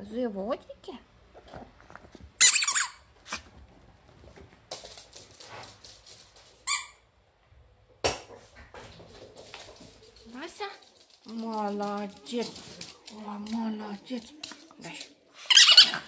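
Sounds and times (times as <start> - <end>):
squeaky toy squeaking: 2.4 - 3.1, 6.7 - 7.0, 15.5 - 16.0.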